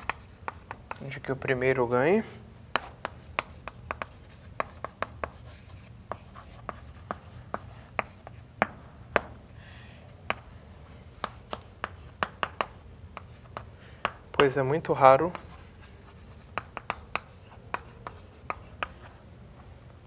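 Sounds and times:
chalk writing on chalkboard: 0.0s - 1.3s, 2.7s - 9.3s, 10.3s - 14.6s, 15.2s - 19.2s.

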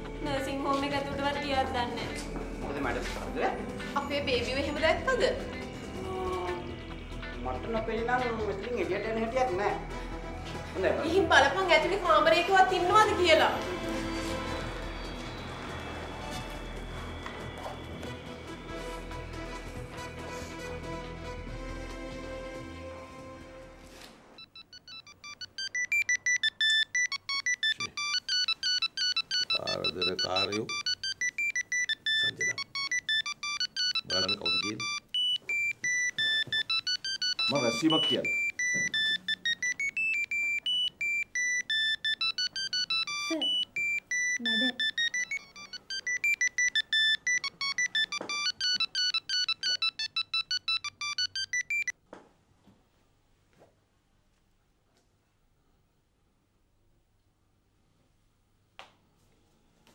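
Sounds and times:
mobile phone ringtone: 0.0s - 7.0s, 9.5s - 18.9s, 24.4s - 52.0s.

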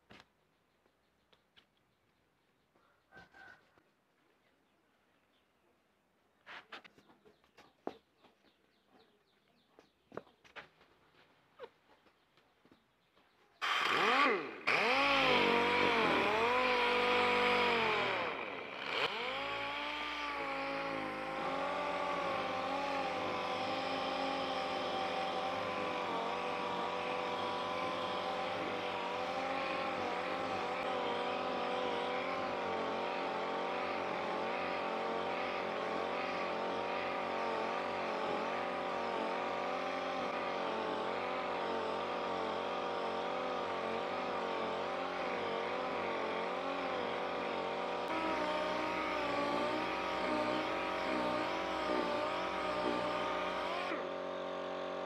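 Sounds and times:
air polisher whining: 13.6s - 55.0s.

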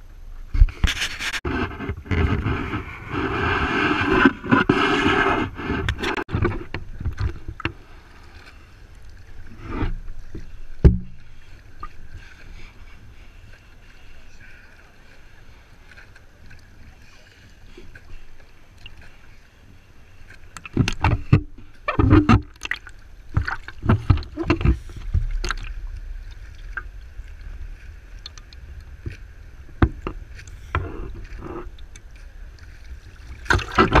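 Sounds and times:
water splashing against camera housing: 20.5s - 27.0s, 33.3s - 34.0s.

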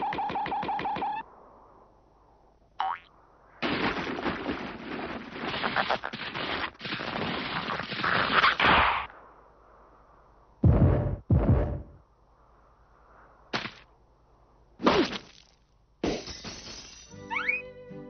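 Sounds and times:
cartoon crackling clattering effect: 5.3s - 9.0s.

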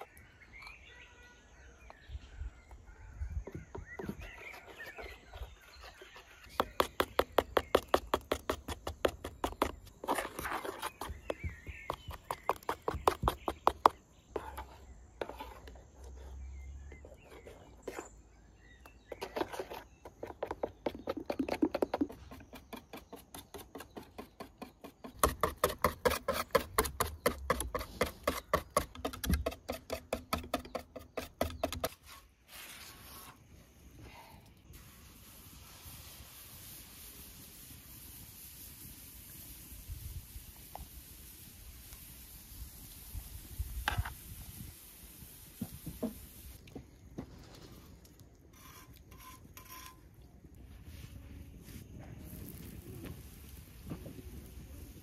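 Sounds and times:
spoon stirring strokes: 4.2s - 18.3s, 19.0s - 31.7s, 48.6s - 51.0s.

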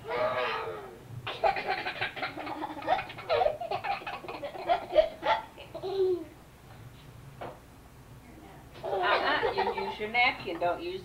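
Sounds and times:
young child laughing: 0.1s - 6.4s.

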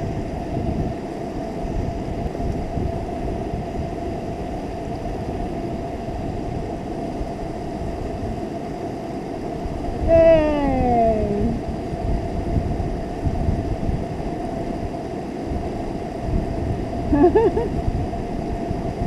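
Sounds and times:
wind on microphone: 0.0s - 19.0s
person calling out: 10.1s - 11.6s.

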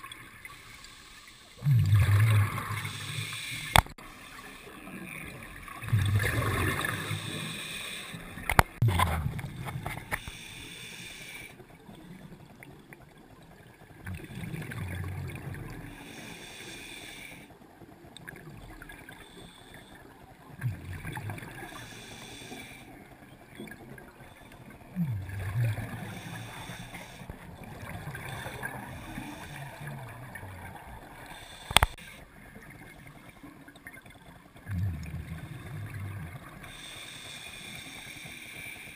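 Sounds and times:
exhaled bubbles gurgling underwater: 0.0s - 38.8s
faint hiss: 2.7s - 4.8s, 36.6s - 38.9s
sharp clicks: 31.6s - 32.0s.

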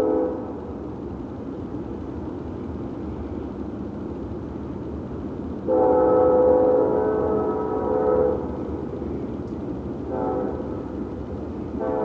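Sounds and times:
locomotive air horn: 0.0s - 0.5s, 5.7s - 8.5s, 10.1s - 10.8s, 11.8s - 12.0s
locomotive engine and wheels rumbling: 0.0s - 12.0s.

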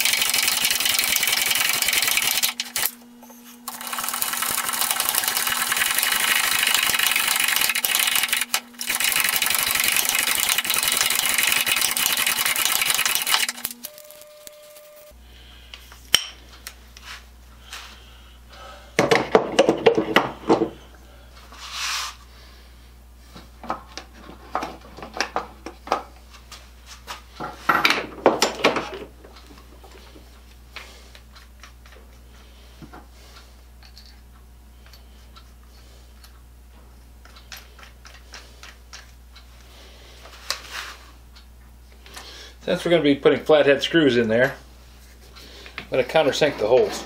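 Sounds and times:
metal tools clattering on wood: 27.4s - 29.1s.

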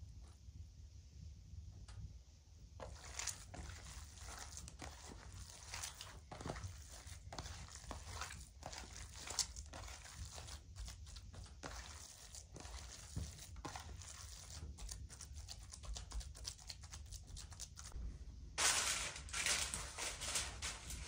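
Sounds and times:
hands kneading wet meat: 2.8s - 18.0s.

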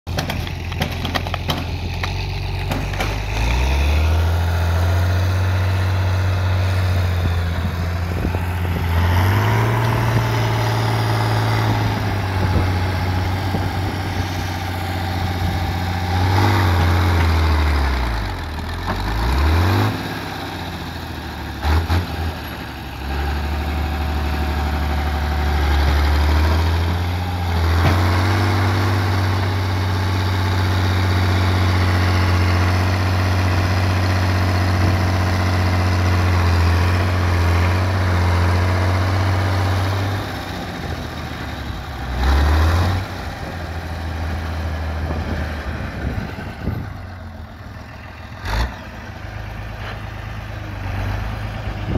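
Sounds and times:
tractor diesel engine straining: 0.1s - 51.9s.

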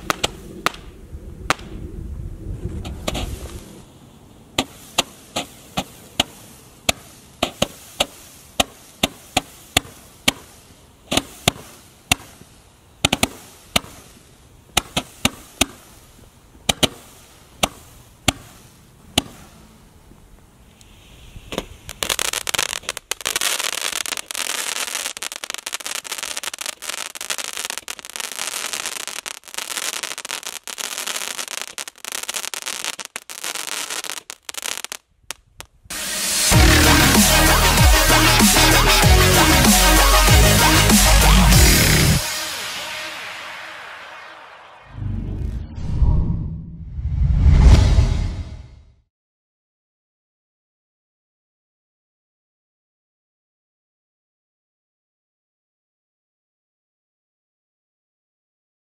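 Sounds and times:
dense firework crackle: 0.0s - 45.5s.

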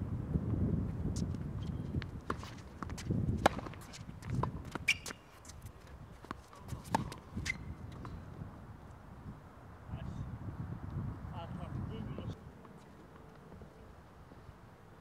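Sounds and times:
tennis ball bouncing: 2.0s - 5.4s, 6.2s - 8.2s
tennis ball struck by rackets: 2.3s - 5.2s, 6.2s - 7.2s.

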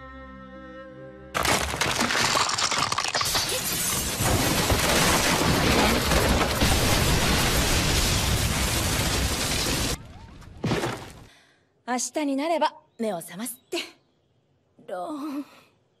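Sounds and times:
house collapsing crash: 1.4s - 11.3s
rumble of crumbling debris: 1.4s - 11.3s.

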